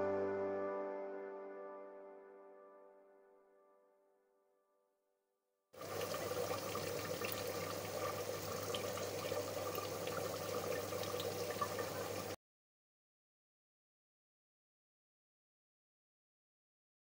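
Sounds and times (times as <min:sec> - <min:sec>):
curry bubbling at a rolling boil: 0:05.8 - 0:12.4.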